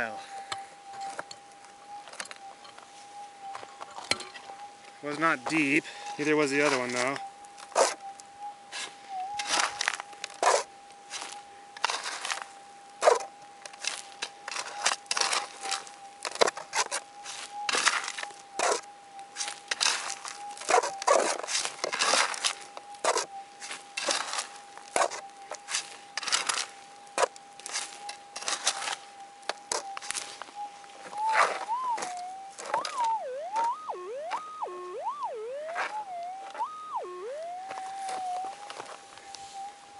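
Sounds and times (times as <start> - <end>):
metal detector steady tone: 0.0 - 39.9
pick and scoop scraping dirt: 5.2 - 33.7, 35.7 - 36.6.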